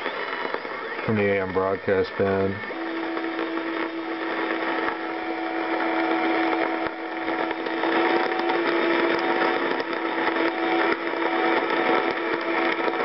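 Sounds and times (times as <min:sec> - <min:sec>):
radio static hiss with crackling: 0:00.0 - 0:13.0.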